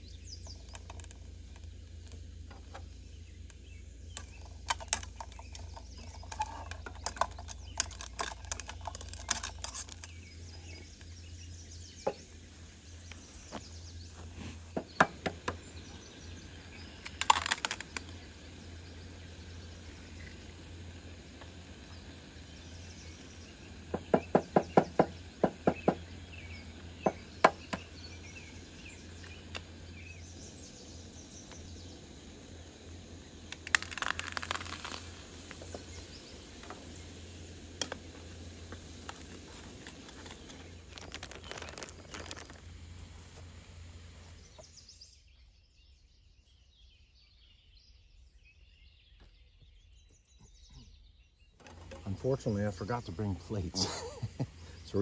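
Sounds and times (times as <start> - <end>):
low steady hum: 0.0 - 24.2, 24.9 - 55.0
clatter and clicks: 4.1 - 10.2, 17.0 - 18.2, 33.5 - 35.7
faint bird chirps: 44.3 - 55.0.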